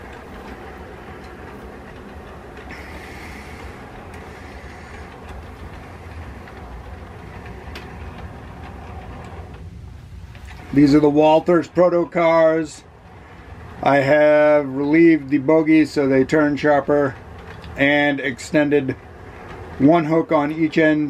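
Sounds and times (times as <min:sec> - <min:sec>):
model train motor hum: 0:00.0 - 0:21.0
wheels rolling on rails: 0:00.0 - 0:21.0.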